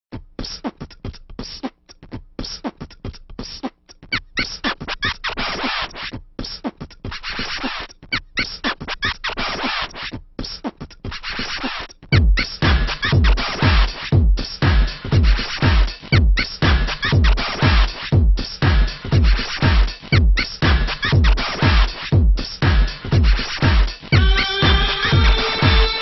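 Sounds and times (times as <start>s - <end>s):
electronic dance music: 4.4s - 6.1s, 7.2s - 10.1s, 11.2s - 26.0s
heavy kick drum: 12.2s - 26.0s.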